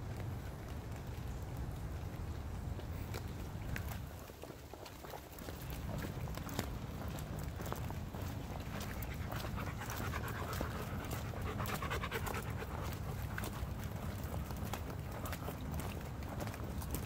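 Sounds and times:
dog panting hard: 0:08.3 - 0:15.6.

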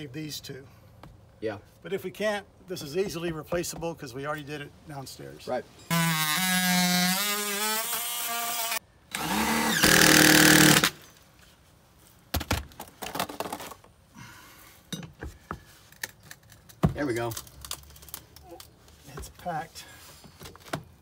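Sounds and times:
power saw cutting wood: 0:05.9 - 0:11.0.

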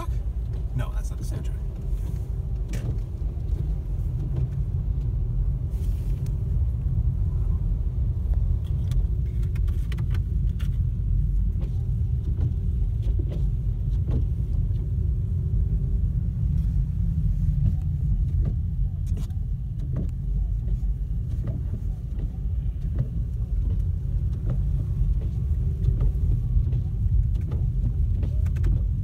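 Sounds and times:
car rumbling on snowy road: 0:00.0 - 0:29.0
faint clicks and knocks: 0:17.5 - 0:29.0.

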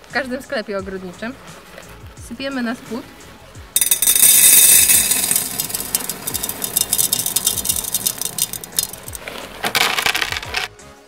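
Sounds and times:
gravel poured into glass: 0:03.8 - 0:10.7.

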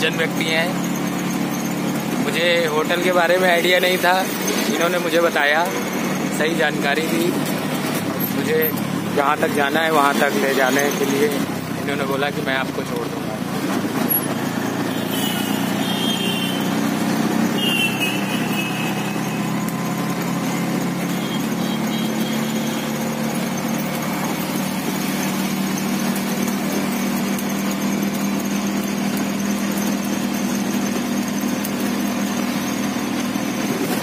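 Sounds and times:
road noise: 0:00.0 - 0:34.0
vehicle engine running: 0:00.0 - 0:34.0
high-pitched squeals: 0:14.0 - 0:33.2.

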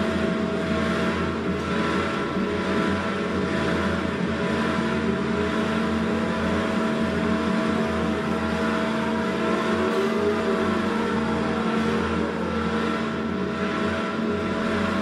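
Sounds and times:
droning ambient score: 0:00.0 - 0:15.0
gliding tone: 0:07.7 - 0:15.0.

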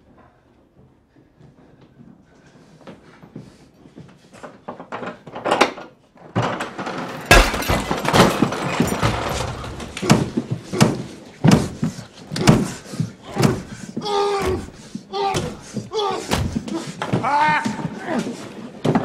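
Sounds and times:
objects banging and crashing: 0:06.4 - 0:13.8, 0:14.4 - 0:17.3.

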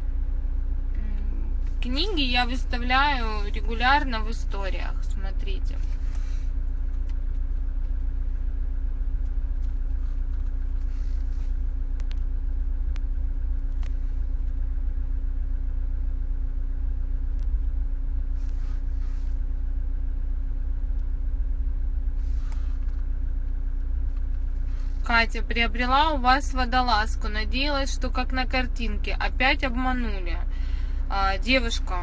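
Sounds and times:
car engine idling: 0:00.0 - 0:32.0.

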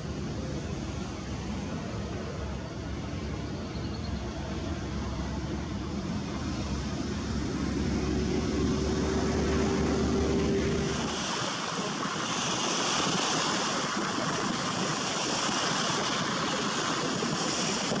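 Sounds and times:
waves breaking on a beach: 0:04.4 - 0:18.0.

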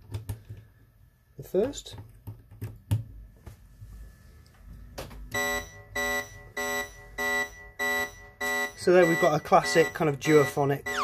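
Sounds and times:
repeating synth note: 0:05.4 - 0:11.0.

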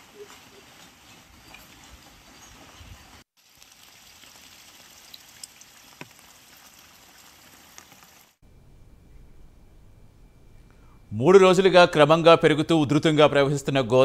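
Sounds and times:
low rumble: 0:08.4 - 0:12.0.

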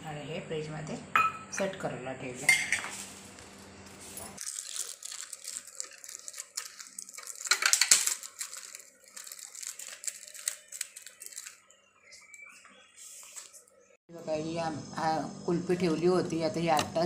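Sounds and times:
plastic sheet crinkling: 0:03.0 - 0:12.4.

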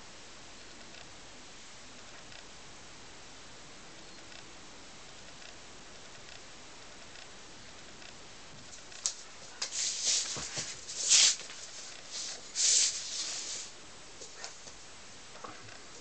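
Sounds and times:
puppy scuffling on floor: 0:08.7 - 0:14.8.

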